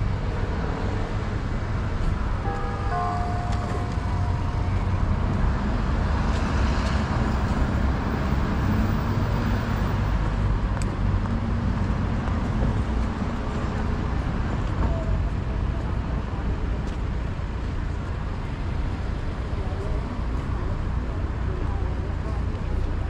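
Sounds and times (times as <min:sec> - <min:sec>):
cars driving past: 0:00.0 - 0:14.8.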